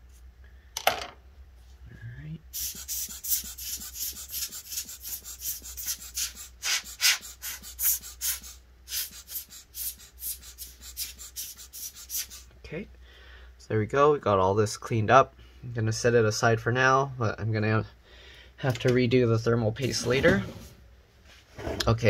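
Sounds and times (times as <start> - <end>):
short hissing air strokes: 2.5 - 12.5.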